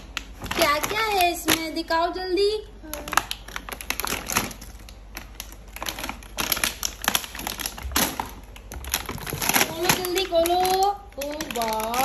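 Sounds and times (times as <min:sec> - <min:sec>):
plastic toy pieces clattering: 0:05.8 - 0:12.0.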